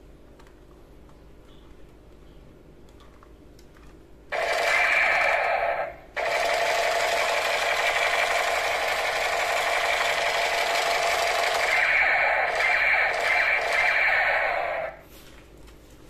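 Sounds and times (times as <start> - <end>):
toy rifle buzzing rattle: 4.3 - 14.9.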